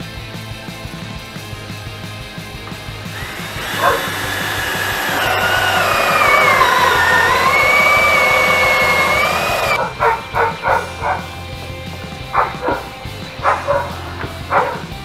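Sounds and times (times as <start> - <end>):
cordless drill whining: 2.9 - 9.8
dog barking: 3.7 - 4.4, 9.7 - 11.3, 12.3 - 15.0.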